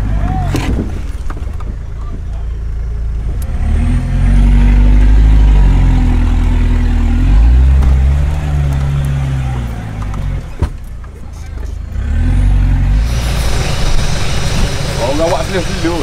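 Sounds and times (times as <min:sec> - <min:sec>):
engine revving hard: 0:03.4 - 0:10.4, 0:11.9 - 0:16.0.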